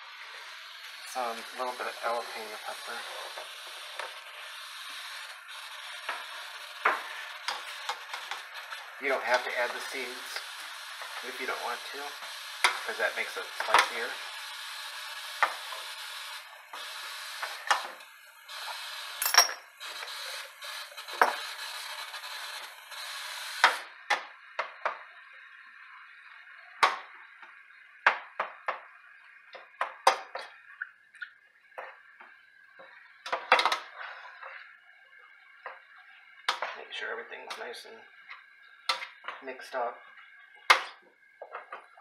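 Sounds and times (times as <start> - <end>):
meat sizzling in a pot: 0.0 - 42.0.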